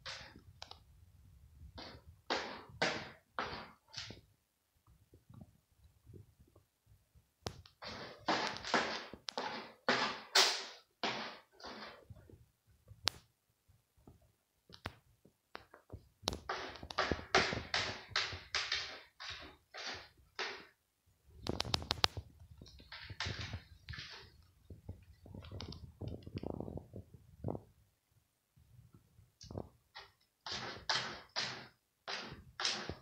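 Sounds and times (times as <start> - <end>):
cat scratching litter: 16.3 - 20.8, 21.4 - 24.5, 29.9 - 33.0.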